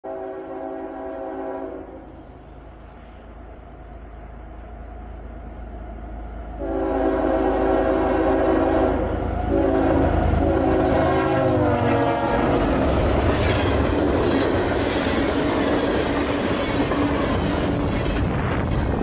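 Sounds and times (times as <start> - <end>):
train horn: 0.0 - 2.2, 6.6 - 13.8
passing train rumble: 0.0 - 19.0.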